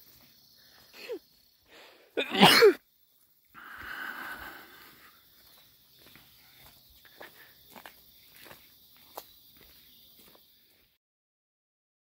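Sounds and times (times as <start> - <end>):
person sneezing: 2.2 - 2.8.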